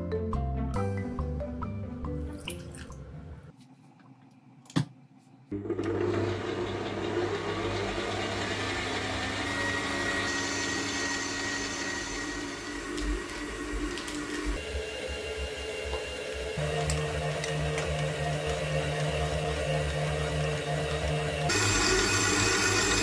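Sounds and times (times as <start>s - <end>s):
stand mixer running: 5.5s - 23.0s.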